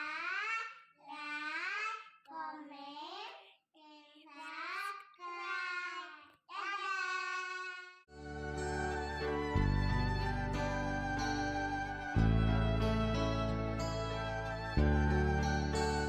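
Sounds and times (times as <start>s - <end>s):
music: 8.1s - 16.0s.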